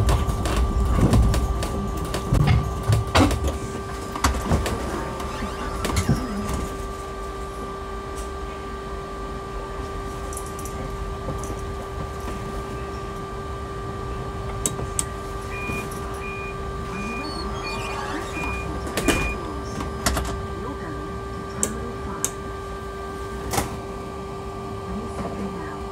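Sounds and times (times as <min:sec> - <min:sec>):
electric pod humming: 0:00.0 - 0:25.9
short high beeps: 0:15.5 - 0:19.4.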